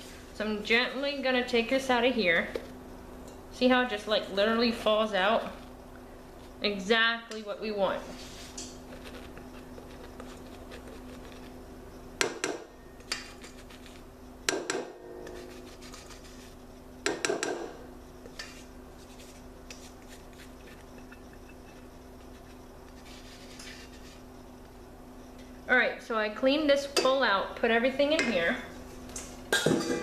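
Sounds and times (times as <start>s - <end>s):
steady low hum: 0.0s - 30.0s
spatula scraping metal bowl: 15.0s - 16.6s.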